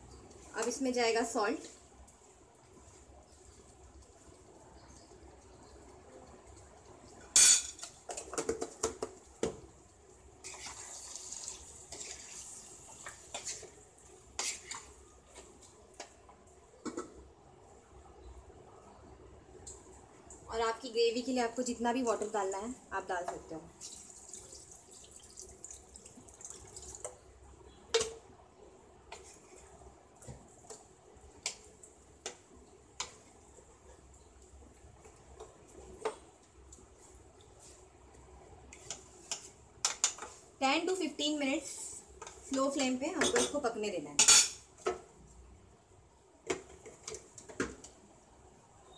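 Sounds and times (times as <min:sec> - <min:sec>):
water pouring into pan: 0:10.5 - 0:13.0, 0:23.8 - 0:27.1
spoon scraping a pan: 0:13.0 - 0:15.0.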